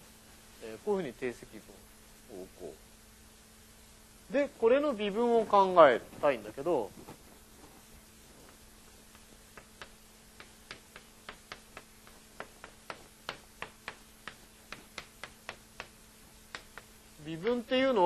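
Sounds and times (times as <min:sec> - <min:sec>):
chalk tapping on blackboard: 0:08.5 - 0:17.6.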